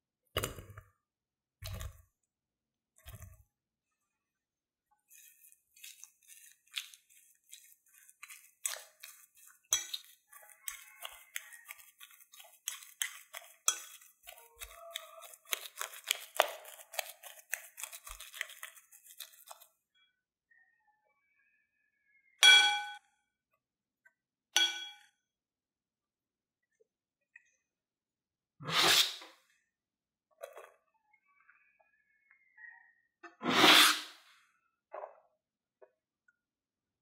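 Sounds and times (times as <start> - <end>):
potato squishing: 1.6 - 2.1, 3.0 - 3.5, 5.0 - 19.8
spoon scraping a glass bowl: 5.0 - 19.7.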